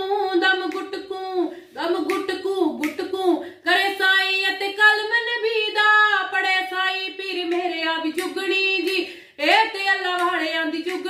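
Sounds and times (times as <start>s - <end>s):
woman singing unaccompanied: 0.0s - 11.0s.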